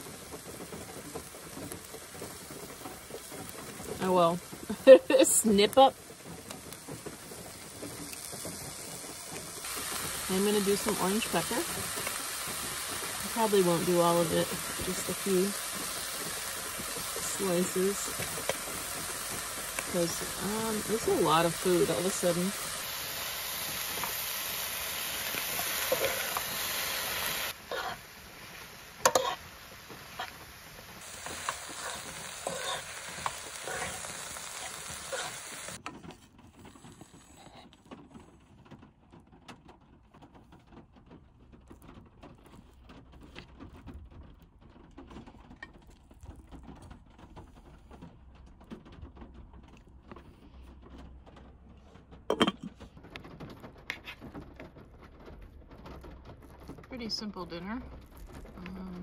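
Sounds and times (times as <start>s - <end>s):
vegetables sizzling in a frying pan: 0.0s - 35.8s, 56.7s - 59.0s.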